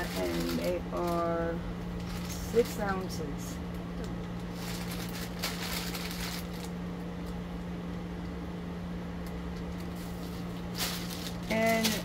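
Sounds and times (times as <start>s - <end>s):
packaging rustling: 0.0s - 2.8s, 4.1s - 6.8s, 9.6s - 12.0s
steady low hum: 0.0s - 12.0s.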